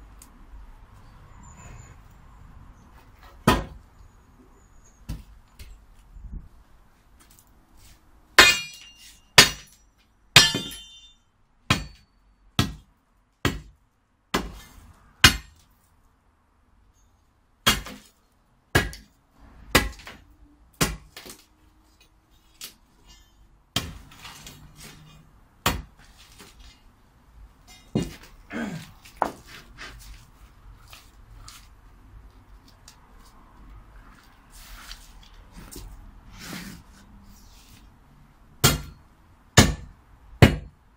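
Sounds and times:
steel bar striking stony ground: 8.4 - 13.8, 14.4 - 15.6, 22.6 - 26.8, 27.6 - 28.4.

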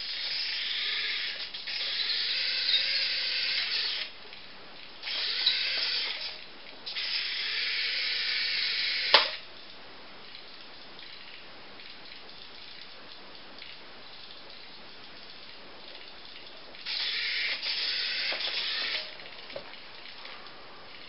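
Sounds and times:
toy motor and gears whirring: 0.0 - 4.2, 5.0 - 9.4, 16.8 - 19.2
sharp click: 9.1 - 9.4.

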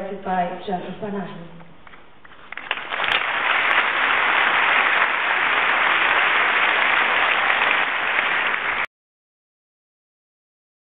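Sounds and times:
audience applauding: 2.5 - 8.9.

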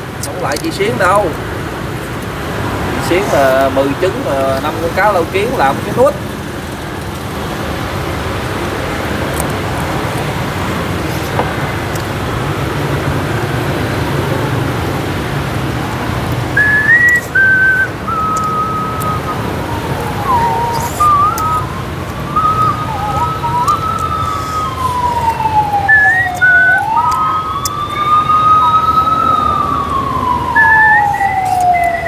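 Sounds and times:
road traffic noise: 0.0 - 32.0
siren wailing: 0.3 - 1.4, 2.9 - 6.3, 16.0 - 32.0.

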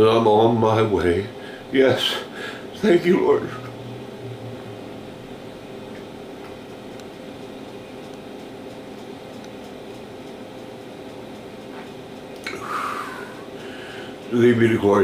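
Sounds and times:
appliance hum: 0.0 - 15.0.

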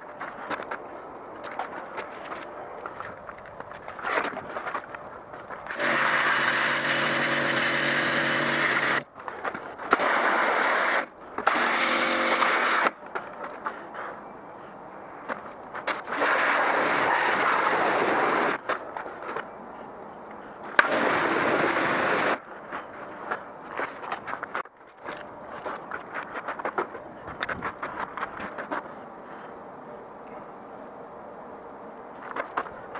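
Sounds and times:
motor hum: 4.8 - 9.1.

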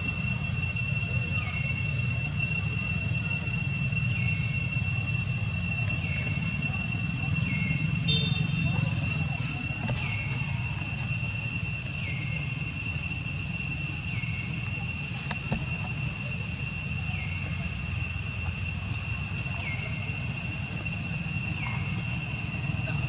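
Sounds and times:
high-pitched insect chorus: 0.0 - 23.0.

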